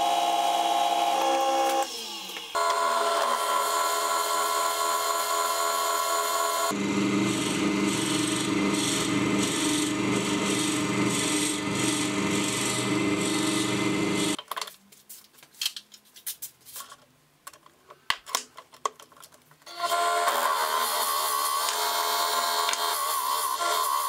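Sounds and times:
lathe motor hum: 0.0s - 14.4s.

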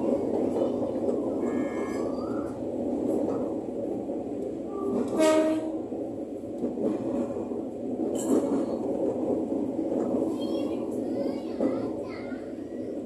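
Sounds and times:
train running rumble: 0.0s - 13.0s.

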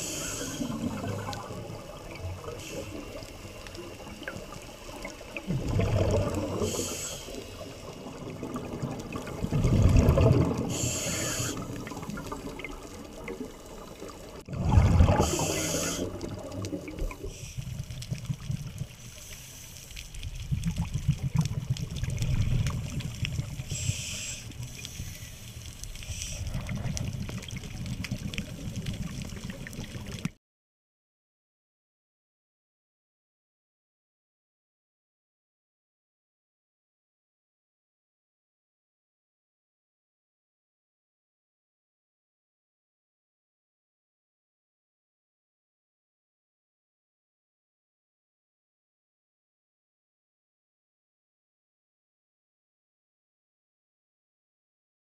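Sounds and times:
regulator hiss: 0.0s - 1.0s, 6.6s - 8.0s, 10.7s - 11.8s, 15.2s - 16.2s, 17.2s - 17.8s, 19.0s - 20.0s, 23.6s - 26.6s
exhaled bubbles underwater: 0.0s - 19.2s, 20.2s - 25.0s, 25.6s - 30.4s.

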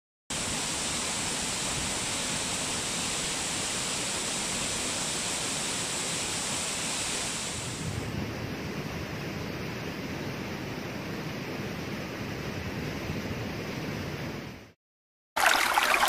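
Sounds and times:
waterfall rushing: 0.4s - 7.9s.

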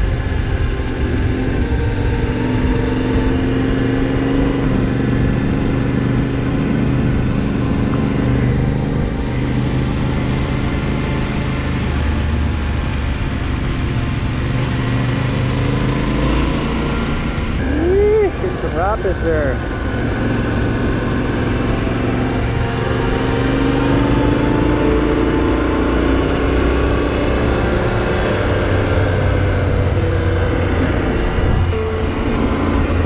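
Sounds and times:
wind noise on microphone: 0.0s - 15.4s, 27.0s - 33.0s
motorcycle engine cruising: 0.0s - 33.0s.

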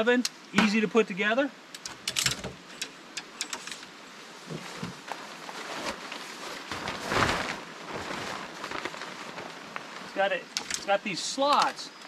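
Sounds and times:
fabric sheet rustling: 4.5s - 10.4s.

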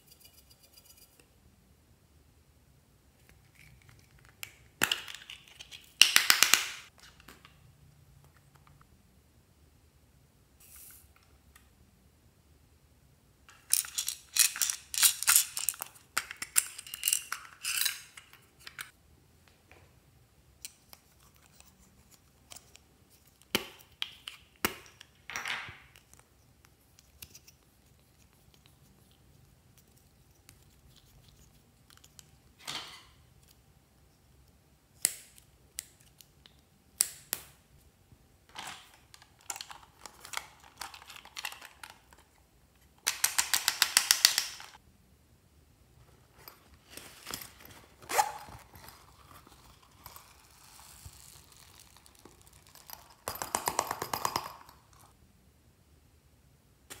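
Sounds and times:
plastic items clicking and rattling: 38.5s - 42.3s.

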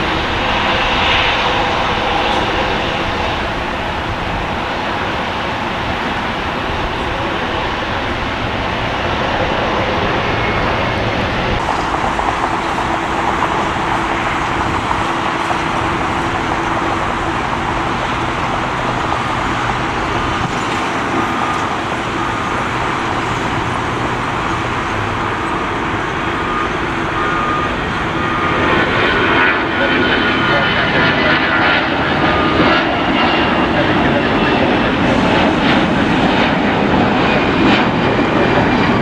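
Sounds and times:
jet engines roaring: 0.0s - 39.0s.

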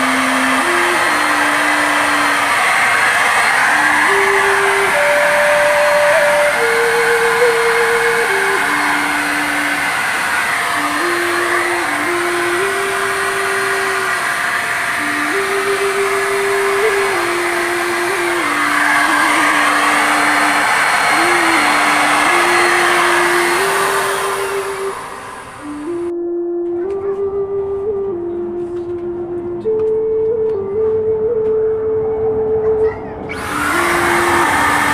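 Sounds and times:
electric spray gun whirring: 0.0s - 26.1s, 33.3s - 34.9s.

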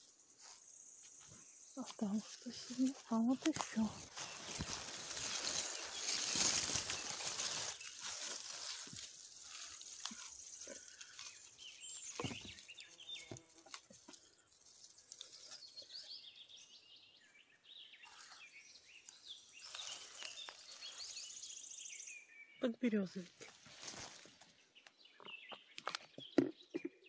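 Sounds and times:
leaves and bushes rustling: 0.0s - 16.8s, 18.0s - 22.2s, 22.9s - 24.8s
small birds chirping: 0.0s - 27.0s
twigs snapping: 1.9s - 15.7s, 19.0s - 21.1s, 25.8s - 26.1s.

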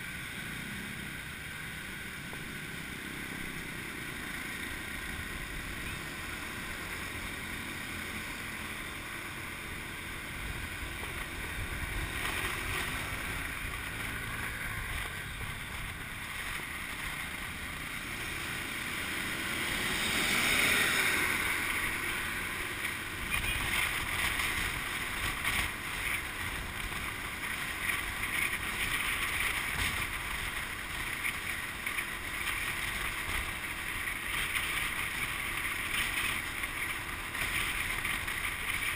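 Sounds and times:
motorbike engine: 0.0s - 38.9s
street traffic: 0.0s - 38.9s
bus passing: 2.6s - 28.0s
wind rushing over microphone: 10.2s - 16.9s.

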